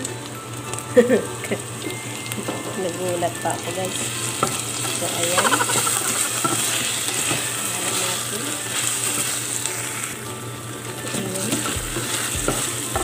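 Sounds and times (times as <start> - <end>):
vegetables sizzling in a pot: 0.0 - 13.0
wooden spoon stirring and scraping: 11.0 - 13.0.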